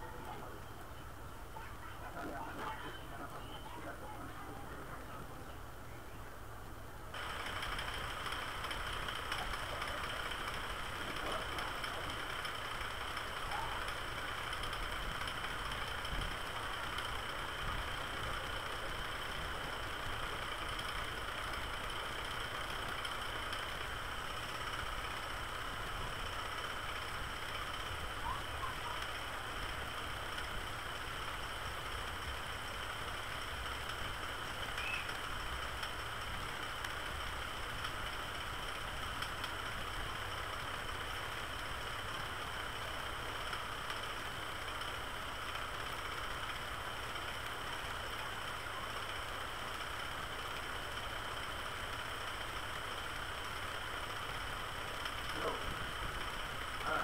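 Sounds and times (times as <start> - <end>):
microphone hum and hiss: 0.0 - 44.5.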